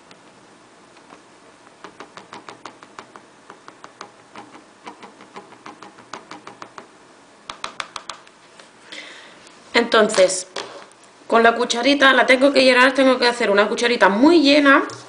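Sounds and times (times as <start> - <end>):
plastic stick tapping plastic dish: 1.8 - 6.9, 7.5 - 8.4.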